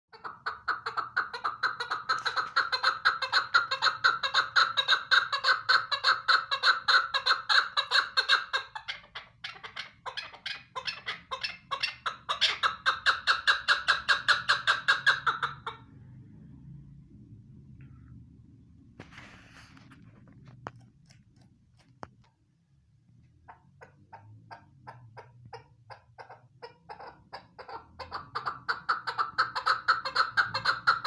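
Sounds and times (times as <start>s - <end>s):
partridge clucking calls: 0.1s - 15.9s, 23.4s - 31.0s.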